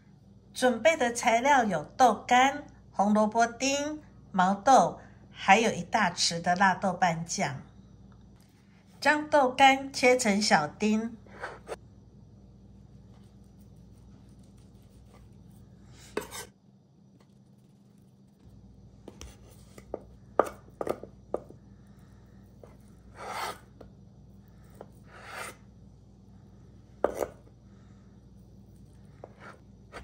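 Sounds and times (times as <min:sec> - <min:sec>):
knife slicing strokes: 0:13.1 - 0:16.5
knife tapping on cutting board: 0:19.9 - 0:21.5.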